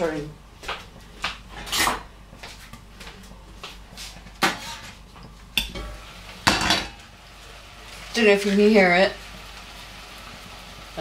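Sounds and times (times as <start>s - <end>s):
pots and utensils clinking: 4.4s - 7.1s.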